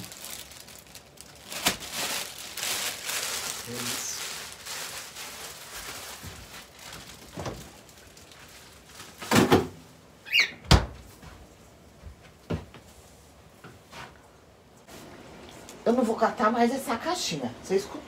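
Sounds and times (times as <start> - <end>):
short high squeak: 10.3 - 10.6
cupboard doors knocking shut: 10.7 - 11.0.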